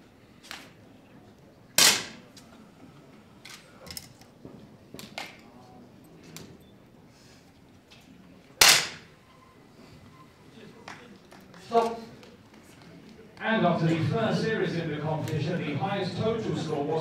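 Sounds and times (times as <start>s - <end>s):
air pistol shots: 1.8s - 2.2s, 8.6s - 9.1s.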